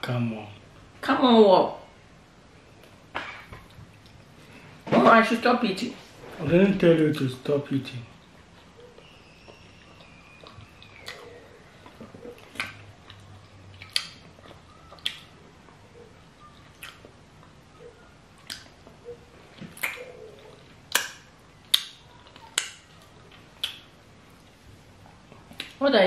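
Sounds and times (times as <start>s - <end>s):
wet chewing lip smacks: 8.2s - 15.3s, 16.4s - 17.6s, 18.4s - 18.8s, 19.6s - 23.9s.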